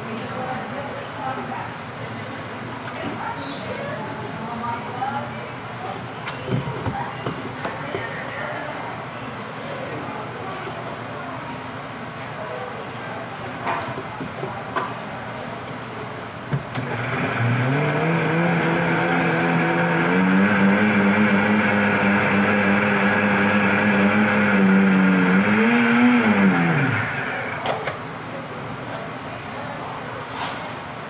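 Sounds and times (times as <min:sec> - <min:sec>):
blender motor whining: 0:16.8 - 0:27.7.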